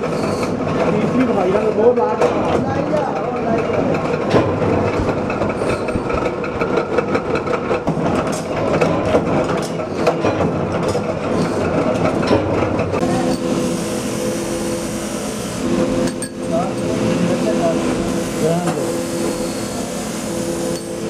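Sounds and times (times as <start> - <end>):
belt grinder motor hum: 13.0 - 21.0
steel rod grinding hiss: 13.3 - 16.2, 18.0 - 21.0.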